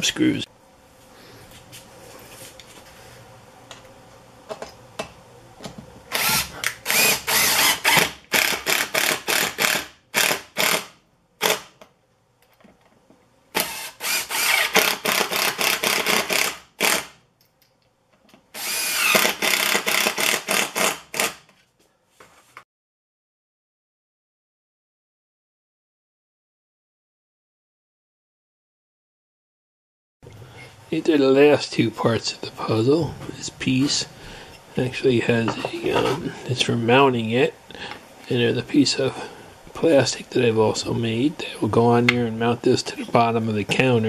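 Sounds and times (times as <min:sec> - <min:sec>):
cordless drill driving screws: 0:06.1 - 0:11.7, 0:13.6 - 0:17.1, 0:18.5 - 0:21.4.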